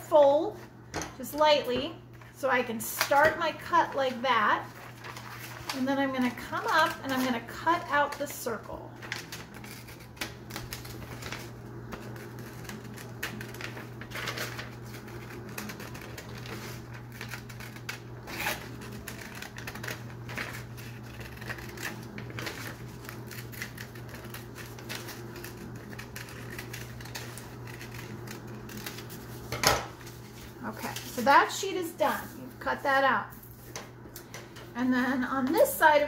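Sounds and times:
low steady hum: 0.0s - 36.0s
scissors cutting paper: 3.0s - 8.4s, 9.0s - 29.4s.

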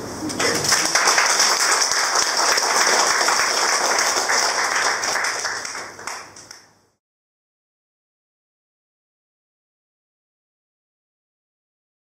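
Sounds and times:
small audience applauding: 0.3s - 6.8s.

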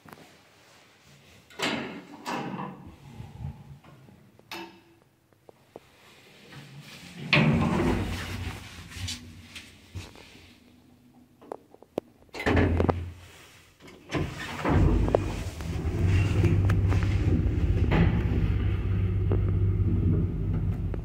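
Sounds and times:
lift doors clattering: 14.1s - 21.0s.

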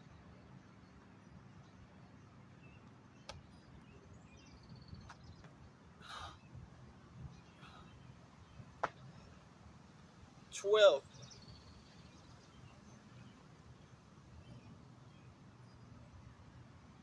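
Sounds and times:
faint bird call: 6.0s - 6.5s.

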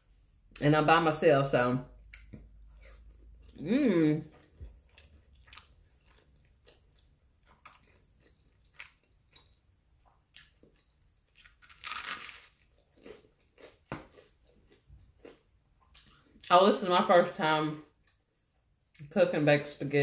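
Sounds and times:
person chewing food: 2.0s - 16.5s, 17.8s - 19.0s.

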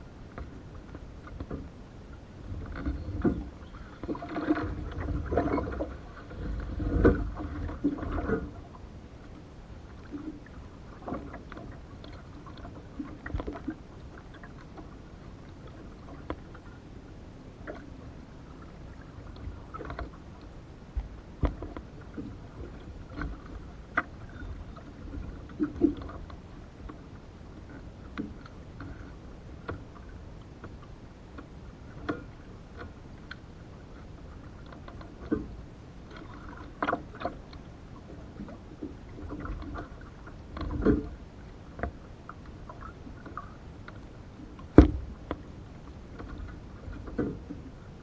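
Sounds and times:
paddle strokes and drips: 0.0s - 48.0s
knocks on canoe hull: 44.7s - 45.0s.

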